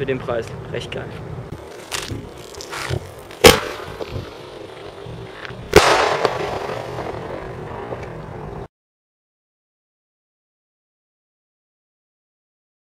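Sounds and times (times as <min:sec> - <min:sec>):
firework crackle and pops: 0:01.7 - 0:08.6
firework shell bang: 0:03.4 - 0:04.2, 0:05.7 - 0:08.2.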